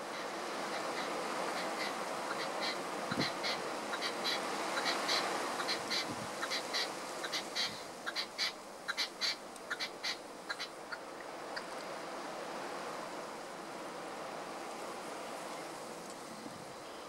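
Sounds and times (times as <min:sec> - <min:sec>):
partridge calling: 0:00.0 - 0:11.7
steady background hiss: 0:00.0 - 0:17.0.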